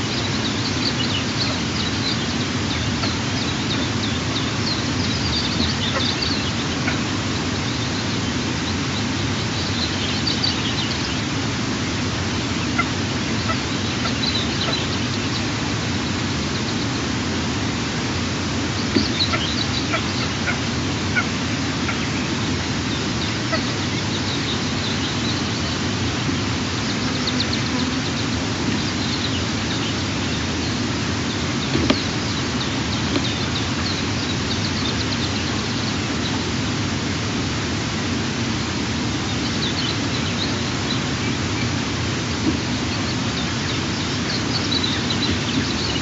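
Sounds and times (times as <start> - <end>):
eagle chicks chirping: 0.0 - 17.1, 18.7 - 36.6, 39.2 - 46.0.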